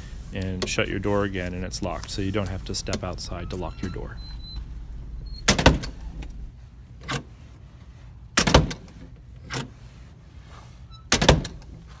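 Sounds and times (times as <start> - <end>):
metal door clattering shut: 5.4 - 6.4, 8.4 - 9.7, 11.1 - 11.7.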